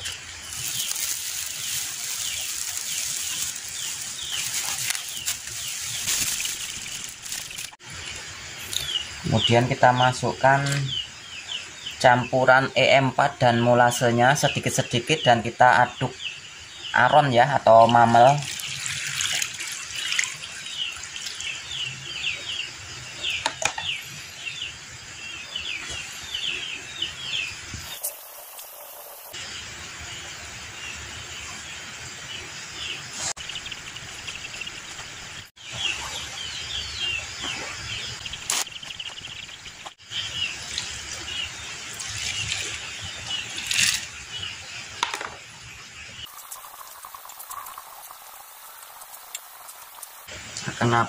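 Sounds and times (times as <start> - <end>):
rice bran pouring: 0.0 - 7.8, 18.2 - 21.4, 46.3 - 50.1
bird chirping: 0.0 - 18.8, 19.9 - 51.0
sack rustling: 0.4 - 7.8.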